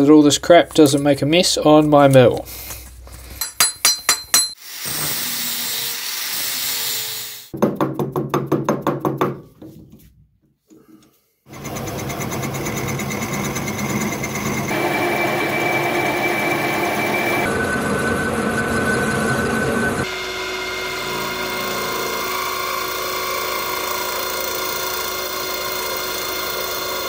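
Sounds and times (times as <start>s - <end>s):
metal lathe running: 11.6s - 27.0s.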